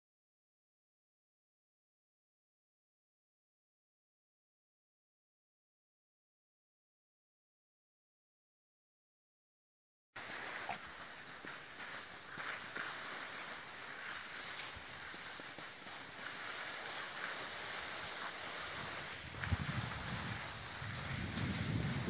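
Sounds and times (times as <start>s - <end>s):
skis sliding over snow: 10.2s - 22.0s
wind buffeting microphone: 18.8s - 22.0s.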